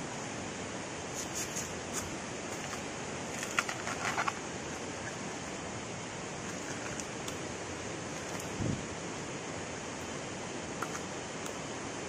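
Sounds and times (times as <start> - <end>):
steady rushing noise: 0.0 - 12.0
bamboo crackling and snapping: 2.6 - 5.3.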